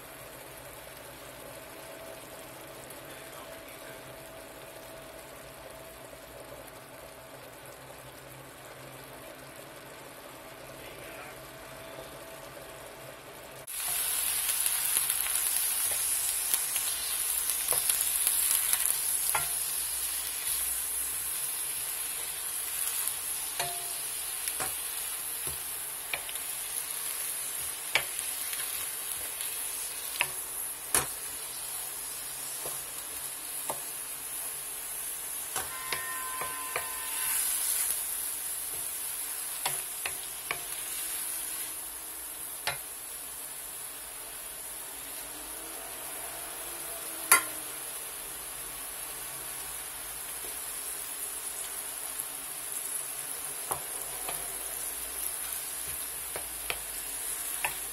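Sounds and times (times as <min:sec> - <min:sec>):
vegetables sizzling in a pan: 0:00.0 - 0:57.9
spatula clicking against pan: 0:42.6 - 0:42.8.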